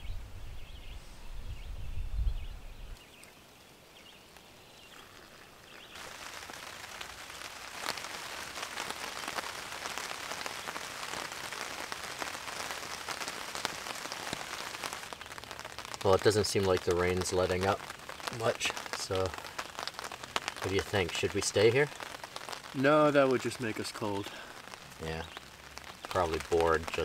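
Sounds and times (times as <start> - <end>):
rain pattering on a tarp: 3.0 - 27.0.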